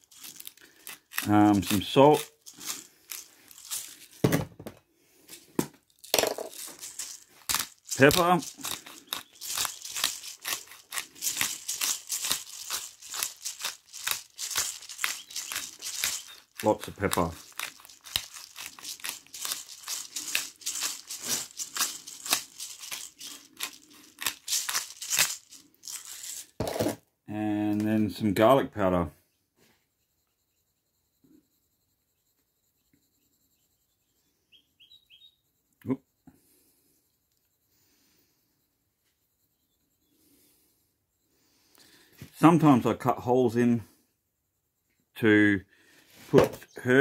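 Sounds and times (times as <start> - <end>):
pepper shaker rattling: 0.0 - 4.3, 5.2 - 26.8
faint high chirps: 29.3 - 36.0.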